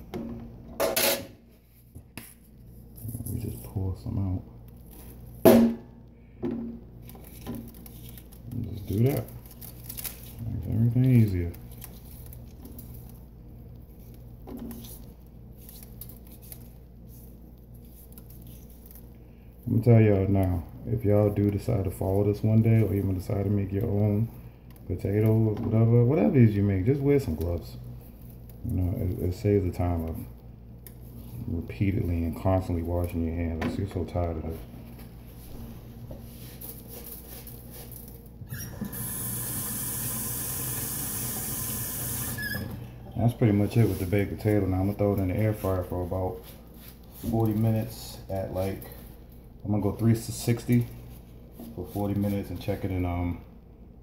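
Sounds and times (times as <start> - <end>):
low steady hum: 0.0 - 54.0
hands rubbing a wet potato: 34.0 - 38.3, 43.2 - 53.0.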